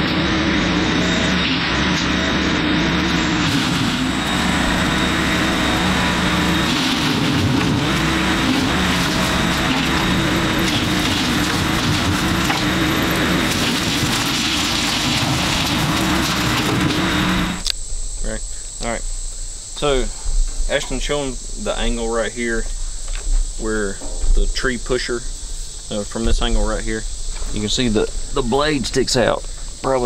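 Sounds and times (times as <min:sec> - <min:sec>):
mower blades cutting brush: 0:00.0 - 0:17.7
tractor engine under load: 0:02.2 - 0:17.7.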